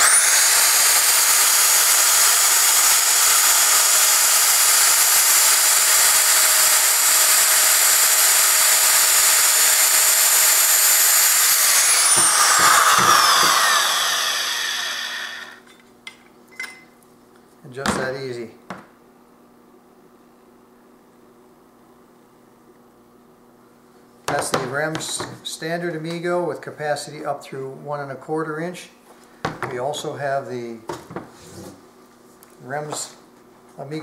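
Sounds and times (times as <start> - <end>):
electric pipe threader motor whine: 0.0 - 15.7.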